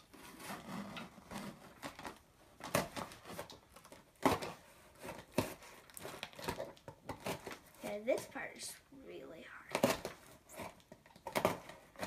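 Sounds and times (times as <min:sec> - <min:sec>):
tape and cardboard rustling: 0:00.0 - 0:08.8, 0:09.7 - 0:12.0
blade slitting packing tape: 0:09.7 - 0:12.0.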